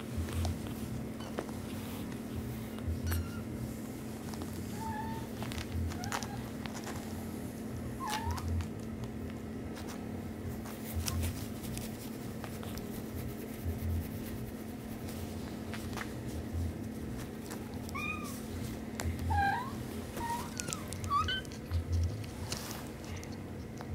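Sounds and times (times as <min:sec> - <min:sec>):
steady low hum: 0:00.0 - 0:23.9
faint rustling clicks: 0:00.2 - 0:07.2, 0:15.0 - 0:23.9
kitten mewing: 0:19.2 - 0:21.9.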